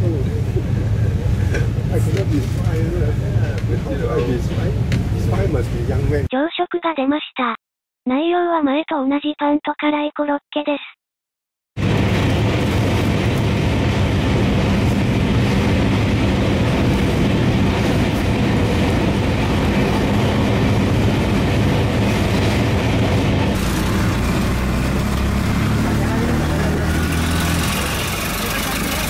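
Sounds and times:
train wheels rumbling on rails: 0:00.0 - 0:06.2, 0:11.8 - 0:29.0
small engine running: 0:23.5 - 0:29.0.

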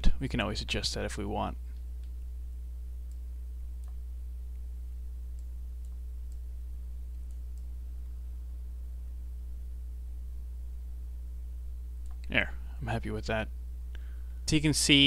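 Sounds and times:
low electrical hum: 0:00.0 - 0:15.0
faint mouse clicks: 0:03.0 - 0:04.6, 0:05.3 - 0:06.5, 0:07.1 - 0:07.7, 0:12.0 - 0:12.4.

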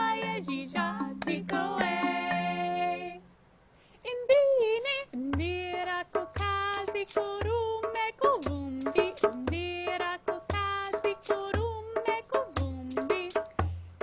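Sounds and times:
woman singing in layered parts: 0:00.0 - 0:03.3, 0:04.0 - 0:13.8
wooden xylophone: 0:00.0 - 0:03.3
beaded gourd shaker: 0:05.3 - 0:14.0
hand drum strokes: 0:05.4 - 0:13.9.

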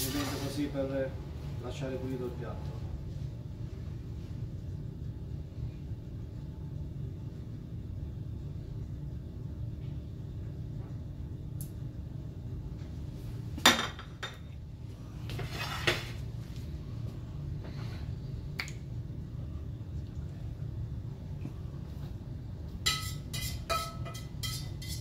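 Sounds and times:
low kitchen hum: 0:00.0 - 0:25.0
plate clink: 0:22.9 - 0:25.0
tableware clattering: 0:22.9 - 0:25.0.

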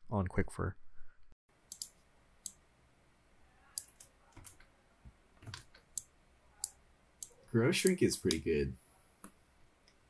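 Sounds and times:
mouse buttons clicking: 0:01.7 - 0:02.6, 0:03.7 - 0:04.7, 0:05.4 - 0:08.5.

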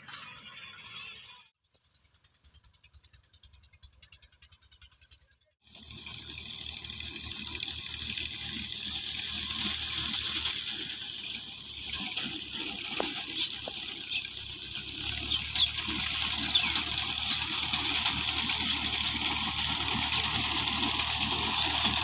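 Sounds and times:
distant low engine hum: 0:01.7 - 0:22.0.

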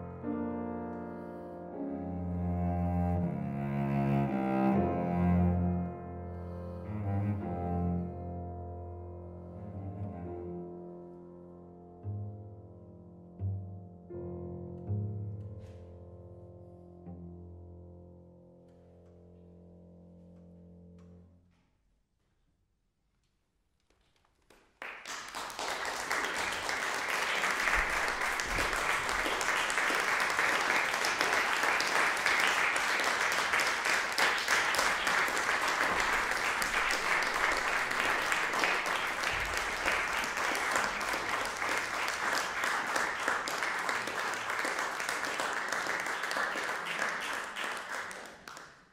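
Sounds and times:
audience applause: 0:24.4 - 0:48.9.

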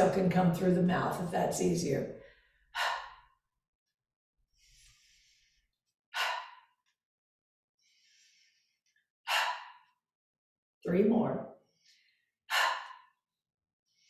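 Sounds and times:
woman inhaling: 0:04.6 - 0:06.8.

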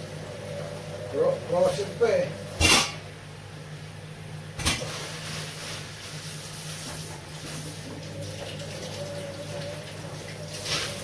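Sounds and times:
tap water running into steel sink: 0:06.8 - 0:11.0.

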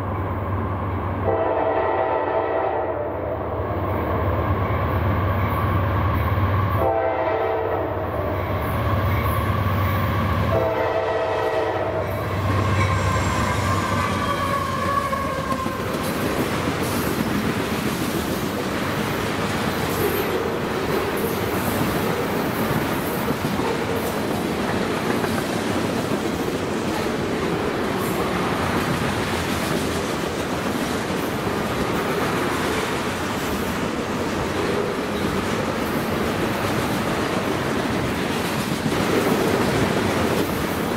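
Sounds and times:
locomotive horn blasts: 0:01.2 - 0:03.2, 0:06.8 - 0:08.0, 0:10.5 - 0:15.4
train wheels clattering on rails: 0:11.5 - 0:40.9.

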